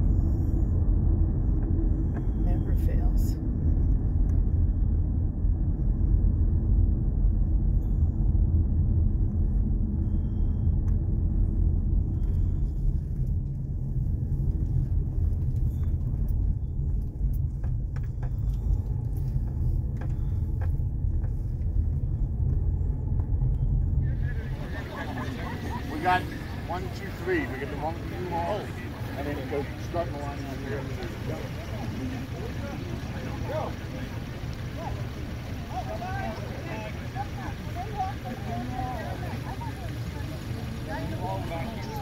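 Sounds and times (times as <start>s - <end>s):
car interior road rumble: 0.0s - 42.0s.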